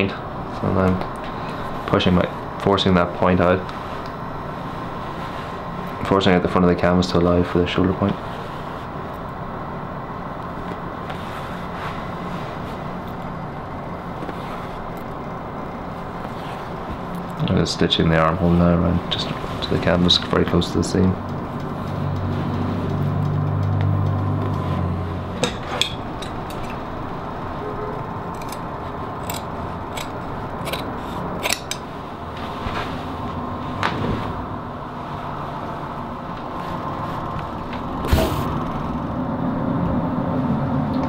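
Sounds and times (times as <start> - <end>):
distant road traffic: 0.0 - 41.0
shears snipping fabric: 28.4 - 31.9.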